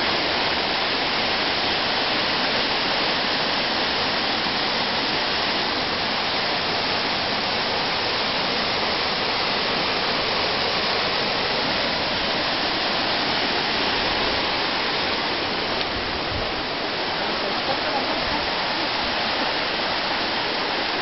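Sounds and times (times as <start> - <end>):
stream and waterfall rushing: 0.0 - 21.0.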